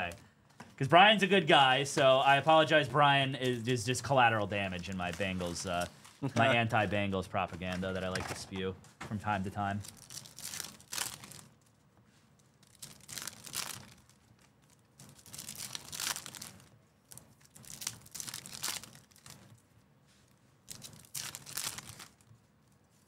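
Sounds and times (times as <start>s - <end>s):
wrapper tearing and crinkling: 9.7s - 11.7s, 12.6s - 19.6s, 20.6s - 22.3s.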